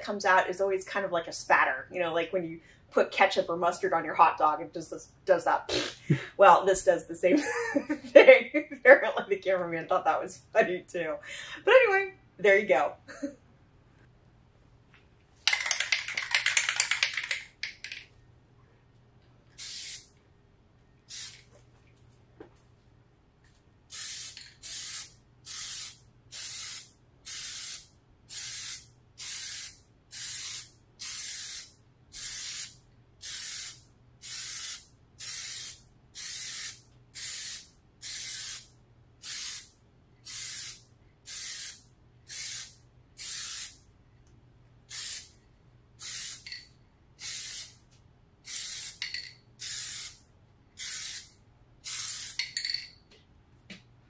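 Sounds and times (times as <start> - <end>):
aerosol spray hissing: 19.6 - 20.1, 23.9 - 38.6, 40.3 - 43.8.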